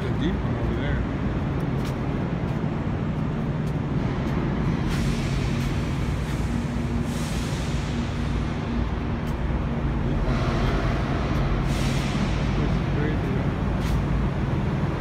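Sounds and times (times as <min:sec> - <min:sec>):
steady hum: 0:00.0 - 0:15.0
truck engines idling: 0:00.0 - 0:15.0.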